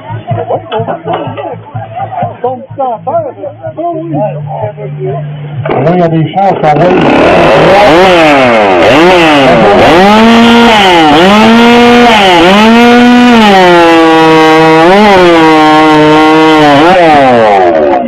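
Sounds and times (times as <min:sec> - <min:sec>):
chainsaw cutting through log: 0:05.7 - 0:05.9, 0:06.5 - 0:18.0.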